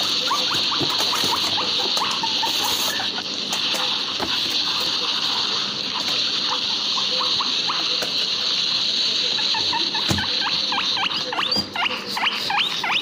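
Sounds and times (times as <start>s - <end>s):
guinea pigs squeaking: 0.0s - 13.0s.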